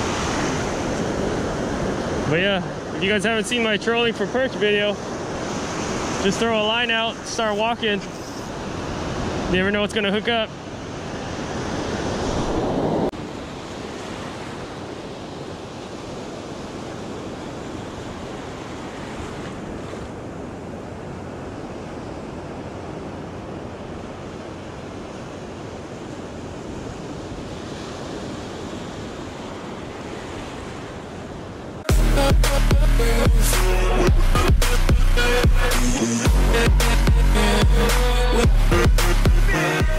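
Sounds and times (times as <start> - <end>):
ocean surf washing on beach: 0.0 - 31.9.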